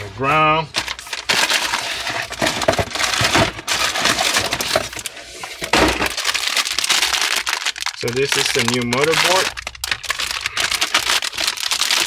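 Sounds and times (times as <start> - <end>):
plastic bag crinkling: 0.6 - 12.0.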